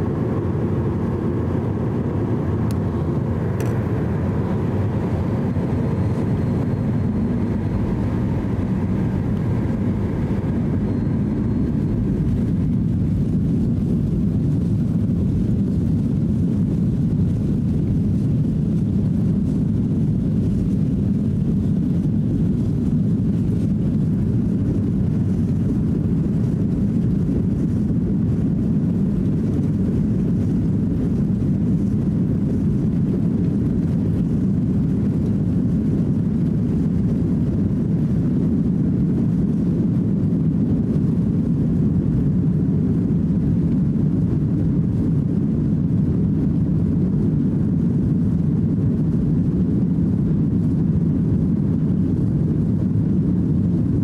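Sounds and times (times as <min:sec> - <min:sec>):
faint whine: 0:00.0 - 0:54.0
jet engines rumbling in cabin: 0:00.0 - 0:54.0.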